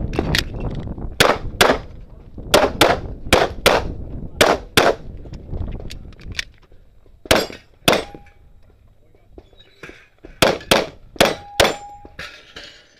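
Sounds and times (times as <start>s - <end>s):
pistol shots: 2.5s - 5.0s, 7.3s - 8.3s, 10.4s - 12.2s
steel target ringing: 7.4s - 8.4s, 10.6s - 12.8s.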